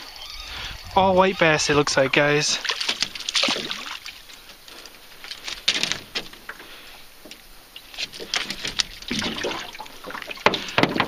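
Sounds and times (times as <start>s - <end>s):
fish flopping on metal boat floor: 2.6s - 11.0s.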